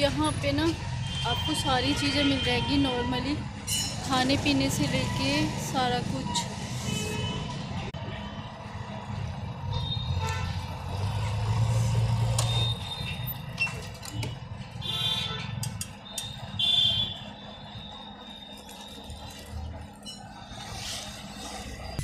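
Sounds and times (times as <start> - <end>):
vehicle engines running: 7.5 - 22.0.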